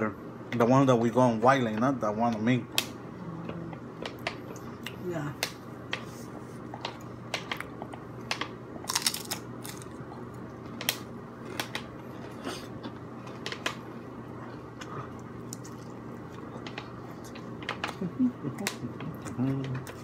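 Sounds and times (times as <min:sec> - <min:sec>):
steady low hum: 0:00.0 - 0:20.0
person chewing food: 0:05.9 - 0:20.0.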